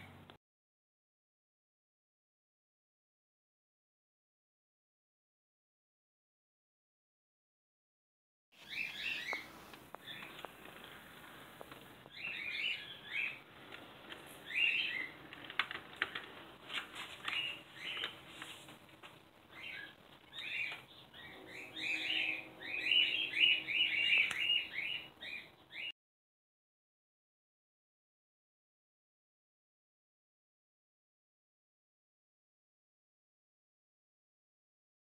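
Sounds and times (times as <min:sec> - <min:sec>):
small bird chirping: 0:08.6 - 0:11.2, 0:12.0 - 0:13.5, 0:14.3 - 0:15.3, 0:17.2 - 0:18.3, 0:19.5 - 0:25.9
faint steady hum: 0:08.6 - 0:25.8.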